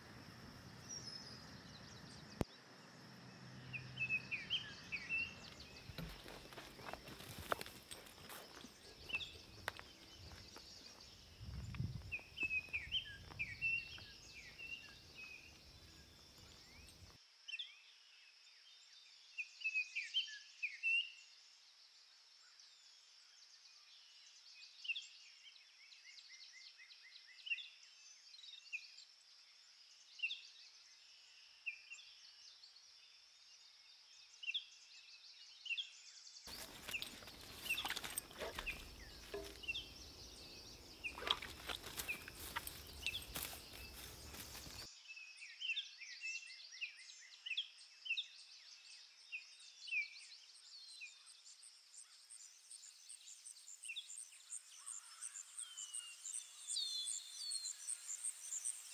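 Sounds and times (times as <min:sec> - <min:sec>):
songbirds chirping: 0:00.0 - 0:17.2, 0:32.1 - 0:58.9
footsteps on forest floor: 0:05.1 - 0:17.1, 0:36.5 - 0:44.9.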